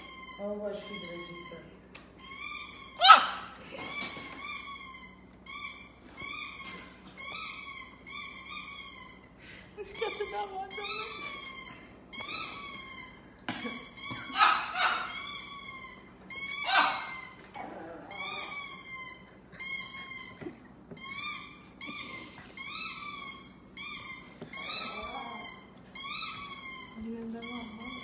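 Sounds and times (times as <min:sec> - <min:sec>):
dog whining: 0:02.2 - 0:09.3, 0:09.9 - 0:28.0
small dog howling: 0:03.0 - 0:03.4, 0:16.6 - 0:18.5.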